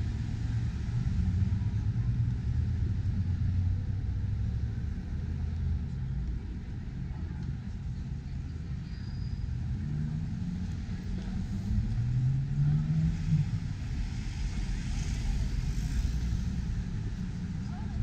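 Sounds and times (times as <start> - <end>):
low rumble of traffic: 0.0 - 18.0
car engine accelerating: 9.6 - 18.0.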